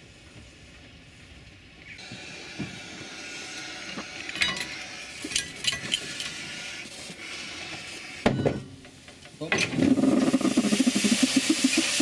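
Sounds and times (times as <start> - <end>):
metal chain links clinking: 4.3 - 6.4.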